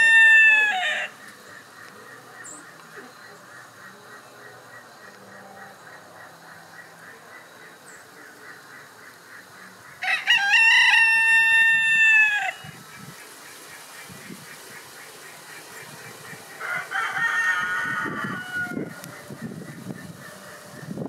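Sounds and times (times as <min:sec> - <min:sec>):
rooster crowing: 0:00.0 - 0:01.2, 0:10.0 - 0:12.8, 0:16.5 - 0:19.2.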